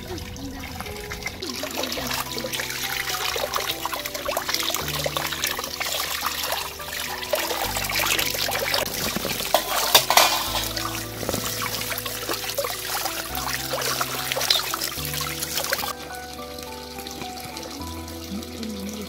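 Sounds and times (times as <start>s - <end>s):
hose water splashing in metal tray: 0.0s - 19.0s.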